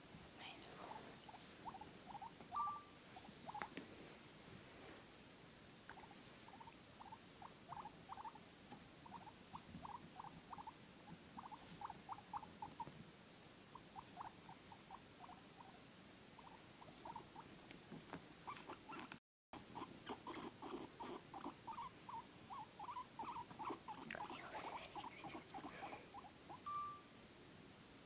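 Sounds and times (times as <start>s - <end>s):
guinea pigs squeaking: 1.2s - 3.7s, 5.9s - 8.4s, 9.0s - 12.9s, 13.7s - 15.8s, 16.4s - 17.5s, 18.4s - 26.8s.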